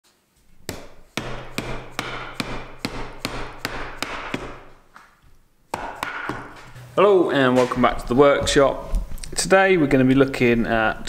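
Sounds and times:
mallet striking wooden door frame: 0.7 - 4.7, 5.7 - 6.6.

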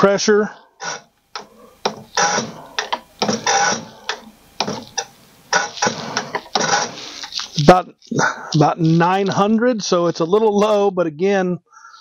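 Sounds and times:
injector nozzle hissing spray bursts: 3.2 - 7.6.

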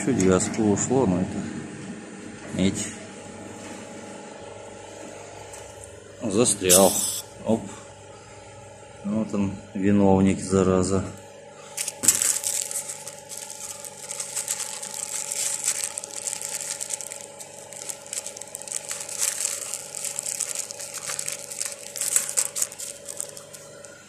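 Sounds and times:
condensing unit humming: 0.0 - 24.0
crackling and rustling: 11.8 - 24.0.

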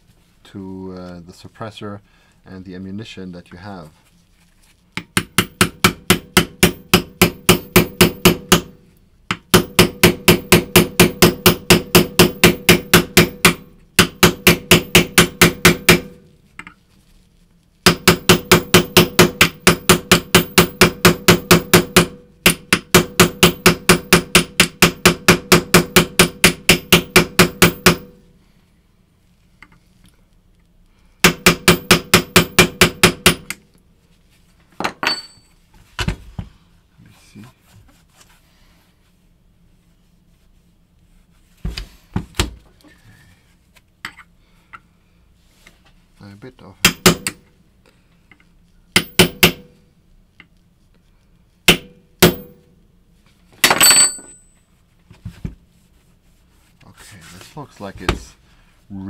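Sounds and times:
hammer tapping steel punch: 5.0 - 16.7, 17.9 - 28.2, 31.2 - 33.6, 46.8 - 47.5, 49.0 - 49.8, 51.7 - 52.6.

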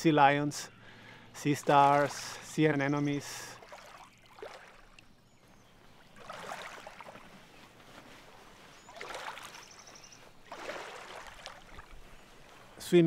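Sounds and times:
small waves washing on shore: 1.4 - 12.8.

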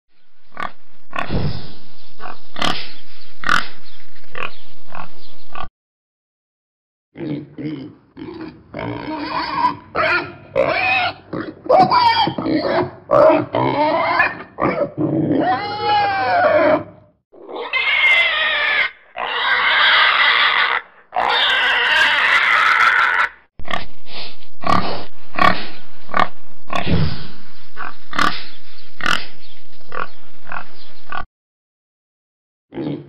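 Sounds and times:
pigs grunting and squealing: 2.2 - 3.8, 7.2 - 24.0, 24.6 - 31.3, 32.7 - 33.0.

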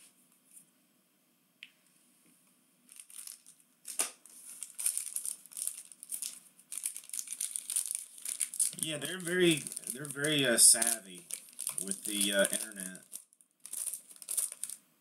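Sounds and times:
foil pack crinkling: 2.9 - 14.8.

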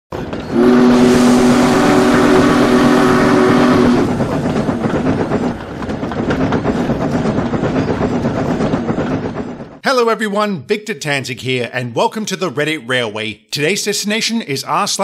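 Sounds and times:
train rhythmic clatter: 0.1 - 11.0
steam locomotive whistle: 0.4 - 4.2.

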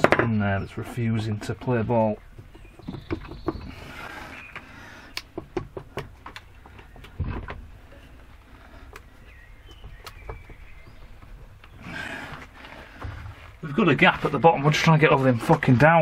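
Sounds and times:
metal clicks and knocks: 0.0 - 0.4, 5.2 - 7.7.

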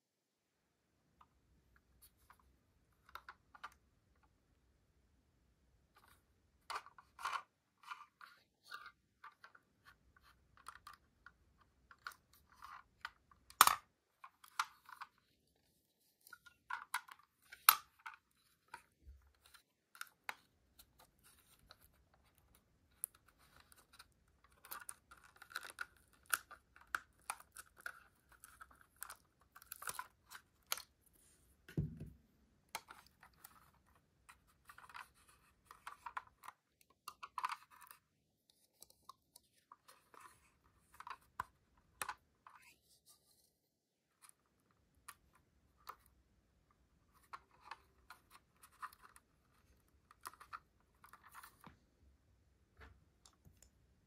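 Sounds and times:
small clicks and scrapes: 1.2 - 4.3, 5.9 - 31.7, 32.7 - 51.9
soft low thump: 31.7 - 32.2.

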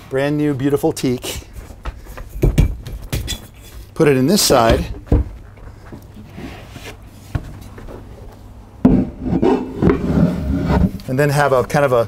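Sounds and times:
table bumping and rubbing: 8.8 - 11.0.

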